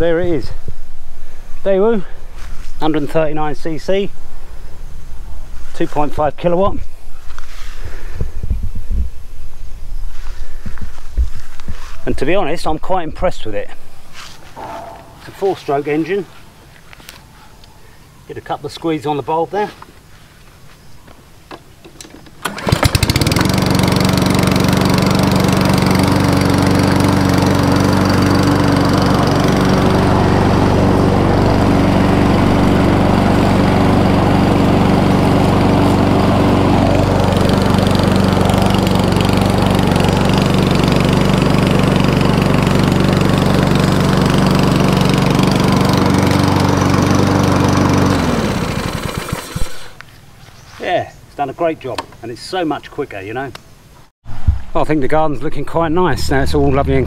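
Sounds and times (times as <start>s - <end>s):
lawn mower pull start: 21.5s - 50.0s
lawn mower engine running: 21.8s - 50.0s.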